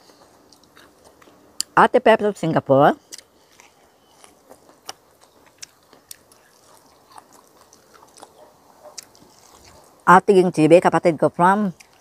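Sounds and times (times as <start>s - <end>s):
mouth clicks and smacks chewing: 0.1s - 1.8s, 3.0s - 10.0s, 11.7s - 12.0s.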